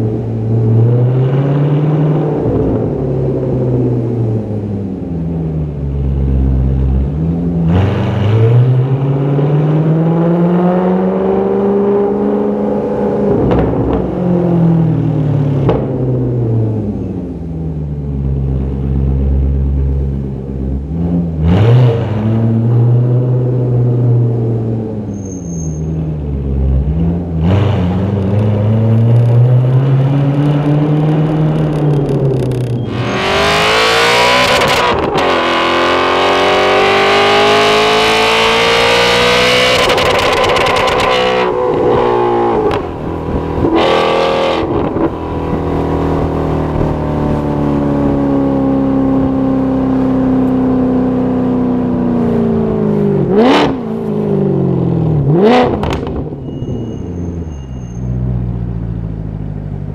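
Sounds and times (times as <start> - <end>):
car engine revving: 0.0 - 25.2, 25.9 - 57.6
exhaust cracks: 30.3 - 33.2.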